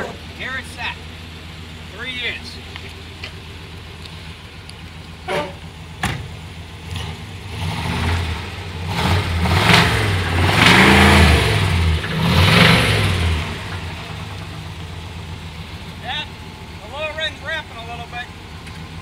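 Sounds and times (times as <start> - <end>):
car engine idling and revving: 0.0 - 19.0
car door shutting: 5.3 - 6.4.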